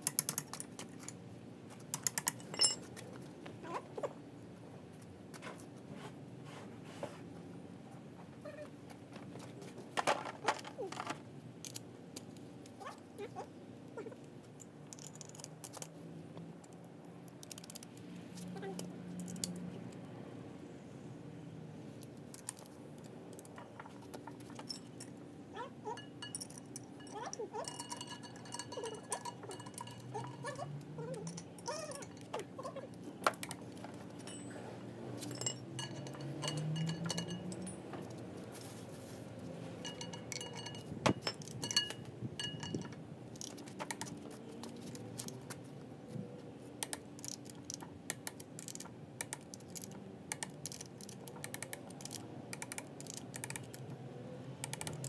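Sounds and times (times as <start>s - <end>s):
steel tools clinking: 1.9s - 3.0s, 23.5s - 25.2s, 25.9s - 38.5s, 39.6s - 43.6s
socket ratchet clicking: 46.8s - 53.8s.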